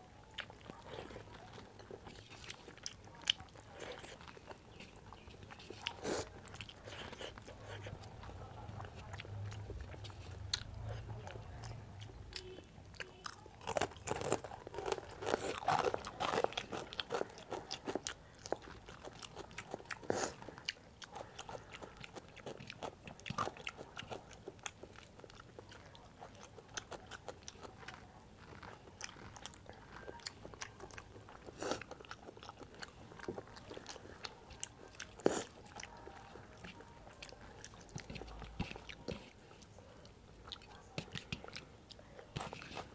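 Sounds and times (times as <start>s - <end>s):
person chewing: 0.0s - 42.9s
crunching fried snack: 12.2s - 39.2s.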